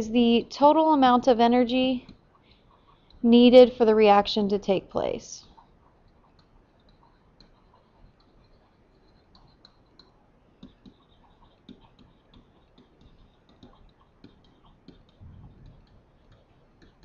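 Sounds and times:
stylus tapping on tablet: 5.4s - 17.0s
soft low bump: 15.2s - 15.8s.

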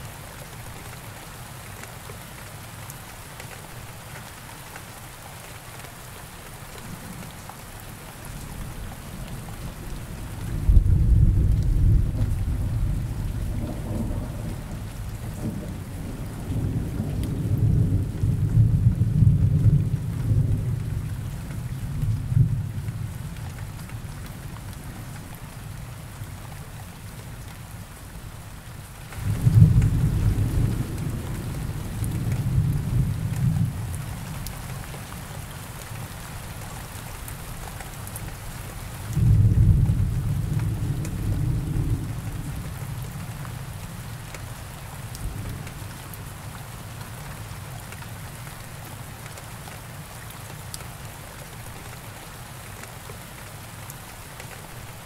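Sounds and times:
steady rain falling: 0.0s - 55.0s
thunder rumbling: 9.9s - 20.8s, 29.2s - 34.0s, 39.2s - 42.8s.

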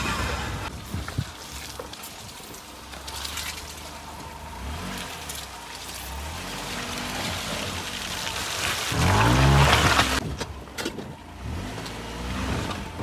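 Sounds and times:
wheels splashing through water: 0.0s - 13.0s
small car engine at low revs: 2.6s - 13.0s.

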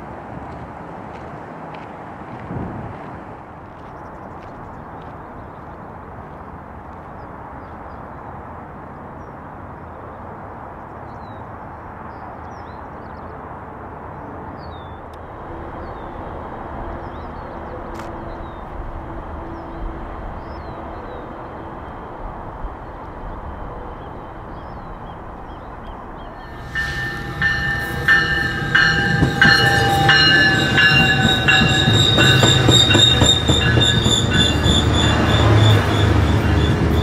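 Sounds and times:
train rumble: 15.0s - 37.0s.

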